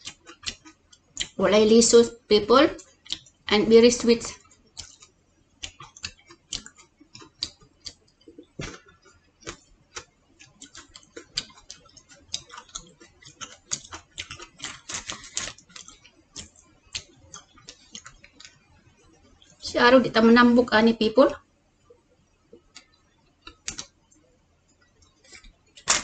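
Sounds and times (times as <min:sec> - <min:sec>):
chewing grapes wet mouth clicks: 0:00.0 - 0:01.4, 0:02.8 - 0:03.3, 0:04.4 - 0:18.5.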